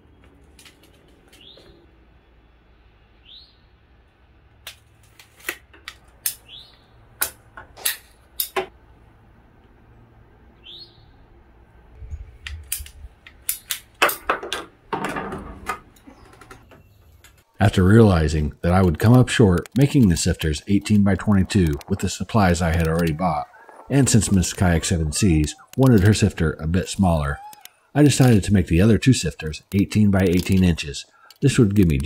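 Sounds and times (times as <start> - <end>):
bird chirping: 1.3 - 3.8, 6.4 - 7.0, 10.6 - 11.3, 16.0 - 17.7, 19.8 - 28.5.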